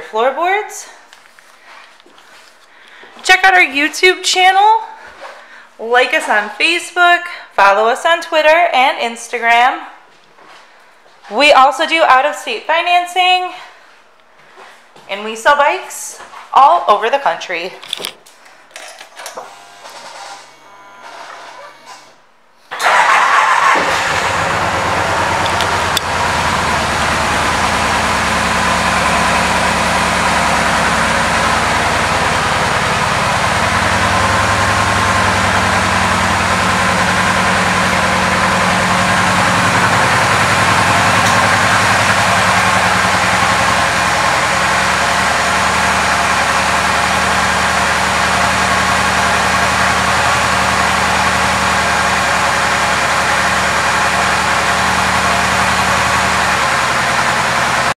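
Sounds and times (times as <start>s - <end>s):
motorcycle engine starting and idling: 18.7s - 57.9s.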